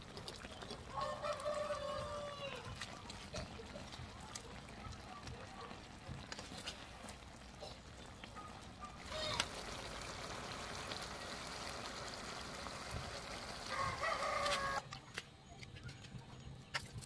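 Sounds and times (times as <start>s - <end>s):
sauce simmering hiss: 0.0s - 14.8s
rooster crowing: 0.9s - 2.7s, 13.6s - 14.9s.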